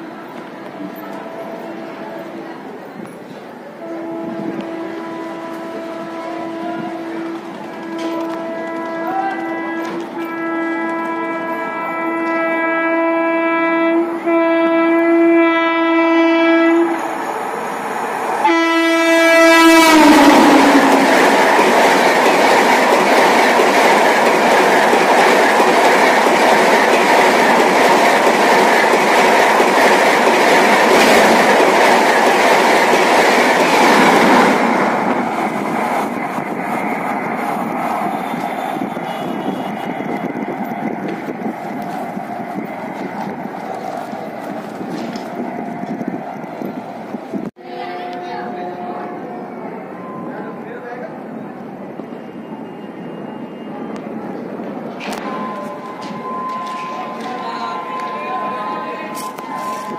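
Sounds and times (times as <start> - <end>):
train horn blasts: 3.8 - 17.0, 18.4 - 21.4, 38.0 - 40.2, 47.6 - 50.3, 55.1 - 59.9.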